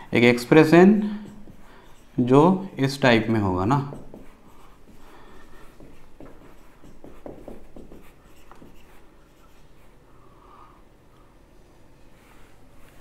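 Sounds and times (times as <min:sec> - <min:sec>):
marker writing on whiteboard: 0:00.0 - 0:10.0.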